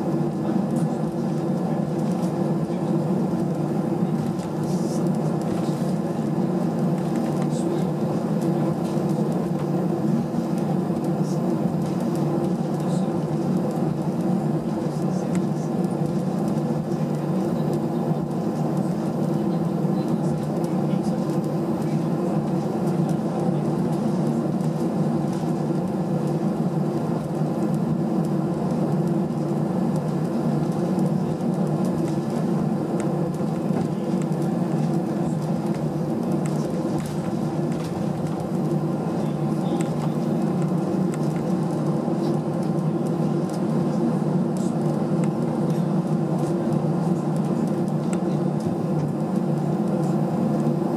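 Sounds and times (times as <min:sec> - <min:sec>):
airliner cabin drone: 0:00.0 - 0:50.9.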